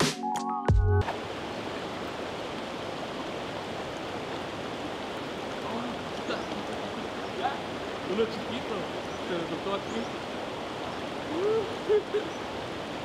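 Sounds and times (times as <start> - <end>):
electronic music with mallet tones: 0.0 - 1.0
stream flowing over rocks: 1.0 - 13.0.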